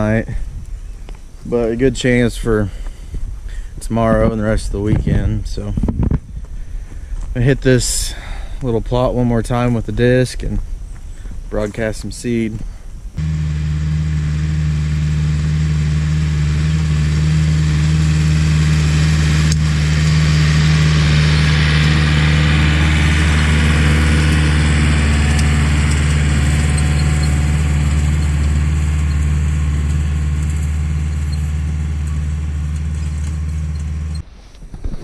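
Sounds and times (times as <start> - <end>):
tractor diesel engine under load: 13.2 - 34.2.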